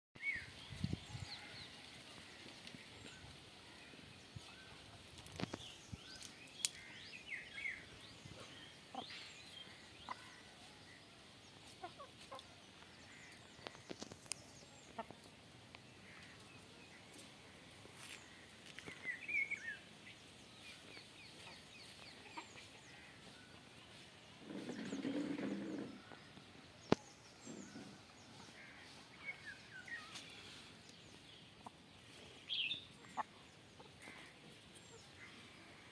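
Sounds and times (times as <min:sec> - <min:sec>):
chickens clucking: 0:08.2 - 0:10.6, 0:11.6 - 0:15.8, 0:20.8 - 0:32.2, 0:32.8 - 0:35.9.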